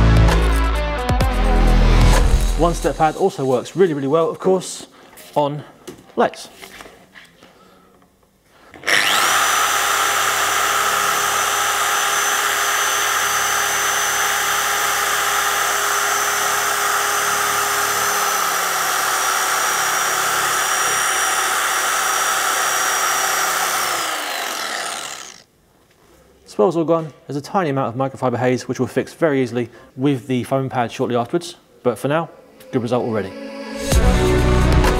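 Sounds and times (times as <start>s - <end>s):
electric car polisher whining: 8.8s - 25.5s.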